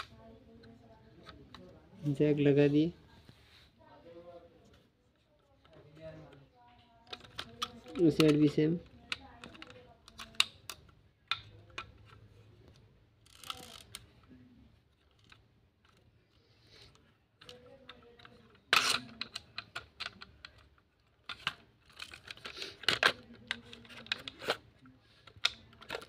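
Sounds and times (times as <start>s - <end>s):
plastic toy clicks and knocks: 5.4s - 12.3s, 13.2s - 16.1s, 16.8s - 26.0s
toy truck clacking on tiled floor: 7.0s - 12.2s, 13.2s - 14.4s, 17.4s - 26.0s.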